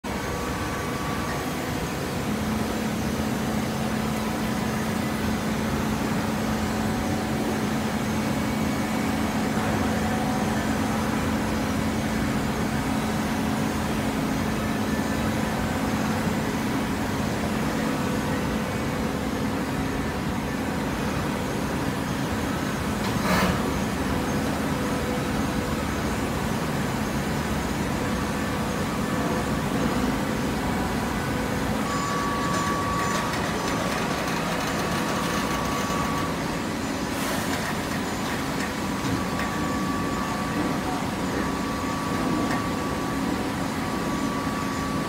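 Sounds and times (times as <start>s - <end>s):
baler mechanical hum: 0.0s - 45.0s.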